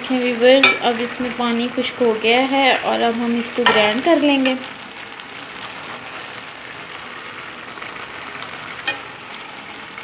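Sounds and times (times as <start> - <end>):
food sizzling in a metal pot: 0.0 - 10.0
spoon clinking on pot: 8.8 - 9.1.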